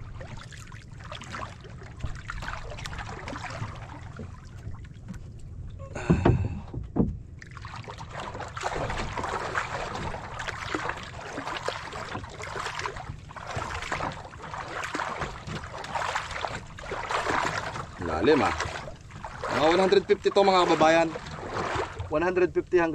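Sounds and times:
water splashing against boat hull: 0:00.0 - 0:22.9
knocks on boat: 0:06.0 - 0:07.6, 0:08.6 - 0:22.6.

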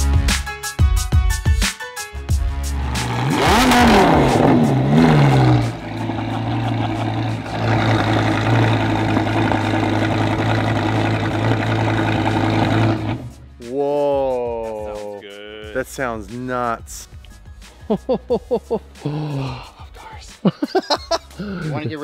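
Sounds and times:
music: 0:00.0 - 0:07.6, 0:13.2 - 0:22.0
sports car engine revving and idling: 0:02.6 - 0:13.5.

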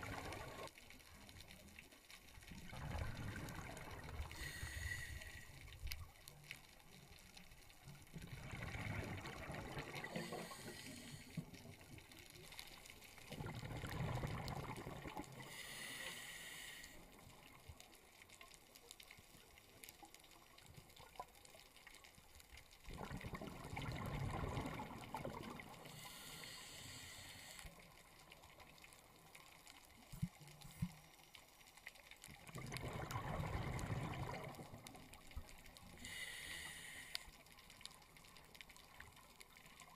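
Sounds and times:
bubbling rush of exhaled air: 0:02.7 - 0:05.4, 0:08.3 - 0:11.2, 0:13.3 - 0:15.6, 0:22.9 - 0:27.1, 0:32.5 - 0:34.7
regulator inhalation hiss: 0:04.3 - 0:05.6, 0:10.0 - 0:11.4, 0:15.4 - 0:17.1, 0:25.8 - 0:27.9, 0:36.0 - 0:37.4.

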